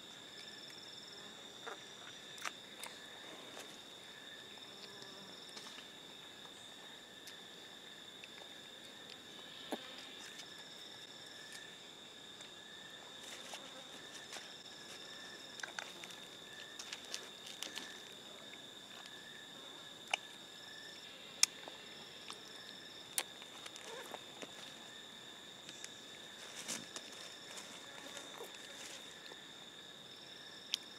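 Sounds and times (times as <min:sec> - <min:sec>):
insects droning: 0:00.0 - 0:30.9
pulsing insect call: 0:00.0 - 0:30.9.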